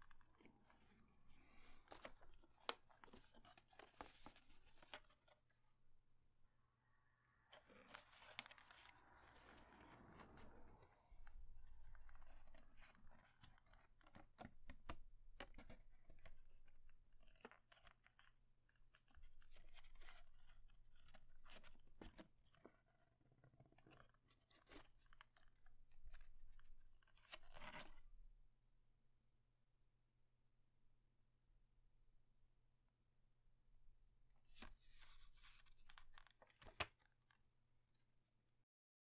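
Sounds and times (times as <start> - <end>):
paper rustling and crinkling: 0.0 - 5.5, 7.5 - 14.8, 34.5 - 37.4.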